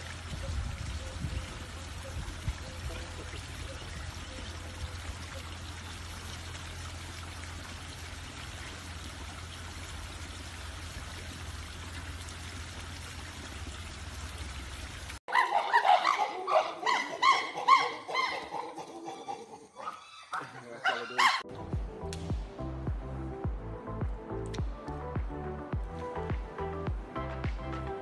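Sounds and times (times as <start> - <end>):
water trickling into pond: 0.0 - 19.0.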